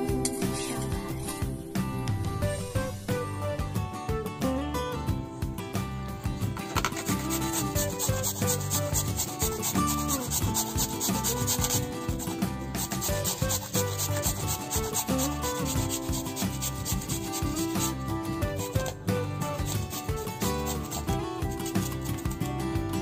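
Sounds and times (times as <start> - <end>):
potato scraping on metal grater: 6.8 - 22.6.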